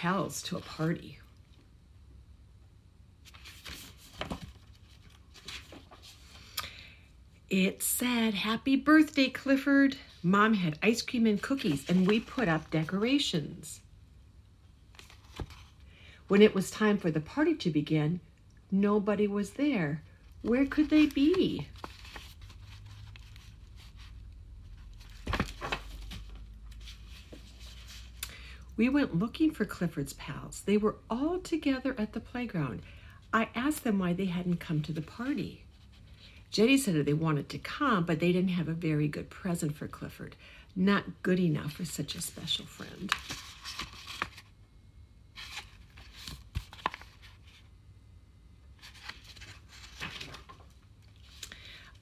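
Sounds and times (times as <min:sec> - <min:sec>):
paper pages rustling: 0:03.2 - 0:06.6, 0:10.9 - 0:13.2, 0:14.9 - 0:15.8, 0:20.4 - 0:28.2, 0:42.1 - 0:44.5, 0:45.3 - 0:47.7, 0:48.8 - 0:51.5.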